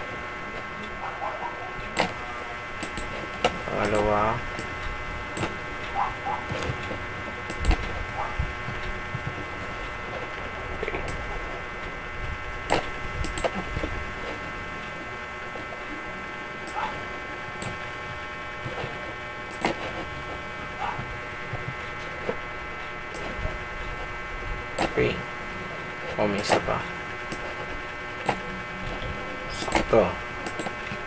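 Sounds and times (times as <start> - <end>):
electrical hum: 0.0 - 31.0
mouse and keyboard clicks: 19.5 - 19.8.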